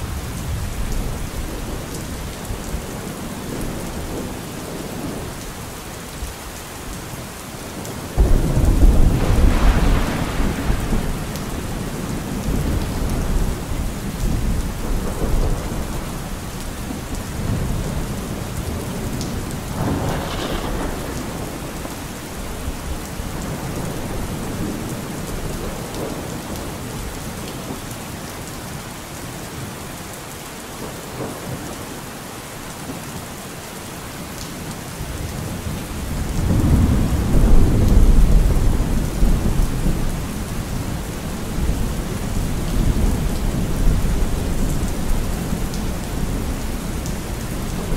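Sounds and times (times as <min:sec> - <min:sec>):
steady rain: 0:00.0 - 0:47.9
thunder rumbling: 0:08.0 - 0:27.2, 0:35.2 - 0:47.9.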